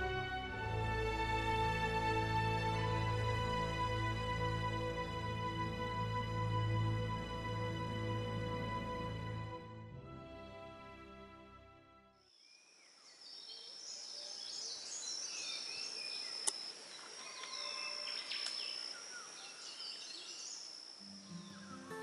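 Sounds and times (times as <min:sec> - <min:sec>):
background music: 0:00.0 - 0:12.2, 0:21.0 - 0:22.0
birds chirping and whistling: 0:17.2 - 0:22.0.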